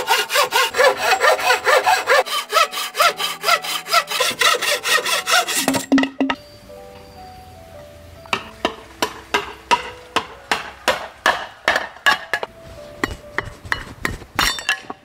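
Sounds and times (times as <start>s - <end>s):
cleaver chopping bamboo: 8.4s - 12.5s.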